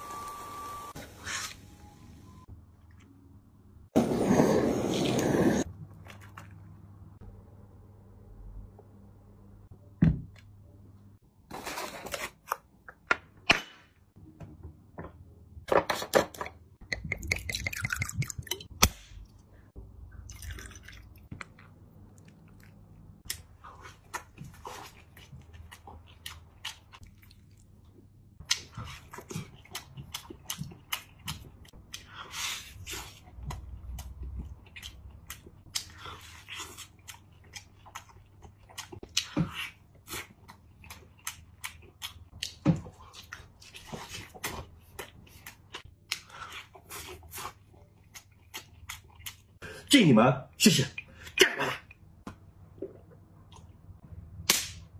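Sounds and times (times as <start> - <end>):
man chewing crunchy food: 21.3 - 32.2, 32.9 - 49.6.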